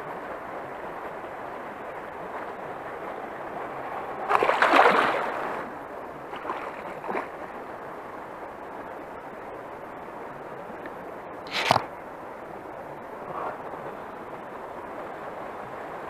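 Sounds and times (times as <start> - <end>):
fish splashing in water: 4.0 - 5.6.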